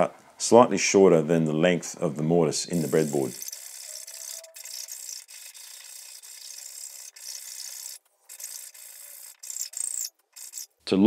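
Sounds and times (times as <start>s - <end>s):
round file rasping in wood: 3.1s - 10.7s.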